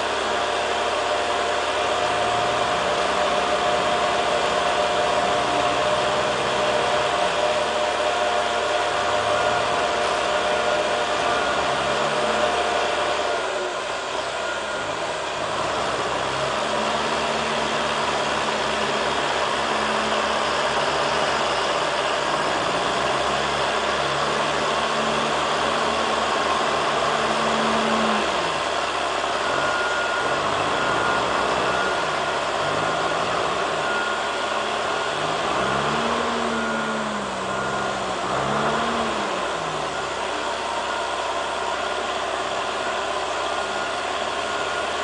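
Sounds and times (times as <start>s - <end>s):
diesel engine revving: 0.0s - 45.0s
hydraulics lowering heavy load: 0.0s - 45.0s
short beeps: 9.0s - 45.0s.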